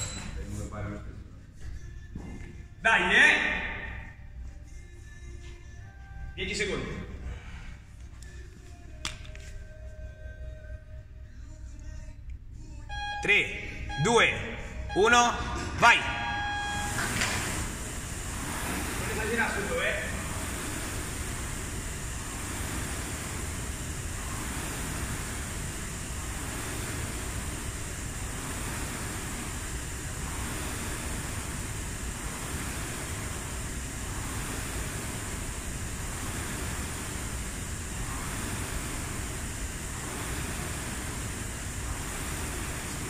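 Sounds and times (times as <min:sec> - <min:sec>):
rowing machine flywheel whooshing: 0:16.4 - 0:43.0.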